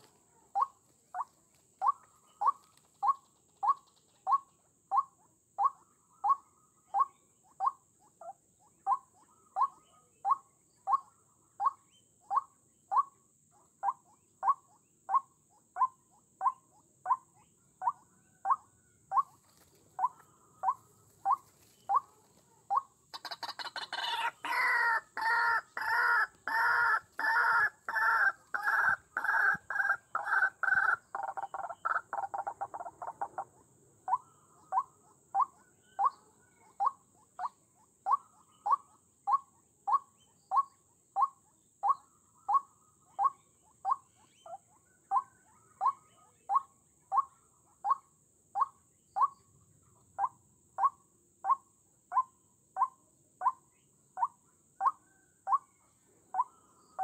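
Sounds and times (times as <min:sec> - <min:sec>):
waterhen calling: 0:20.0 - 0:33.4.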